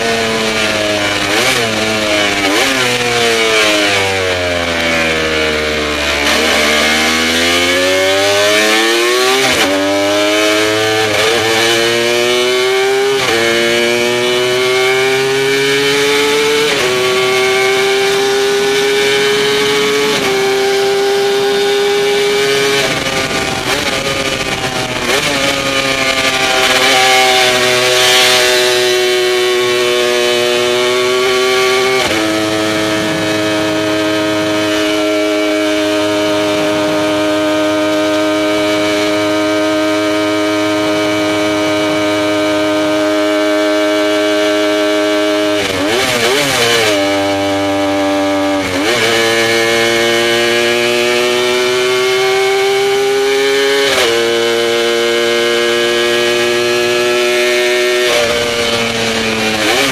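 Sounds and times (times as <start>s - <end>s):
two-stroke racing engine revving: 0.0s - 59.9s.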